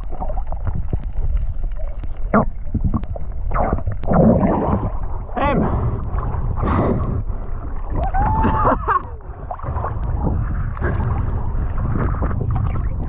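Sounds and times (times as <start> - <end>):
sea water sloshing and gurgling: 0.0 - 13.0
wind buffeting microphone: 2.6 - 13.0.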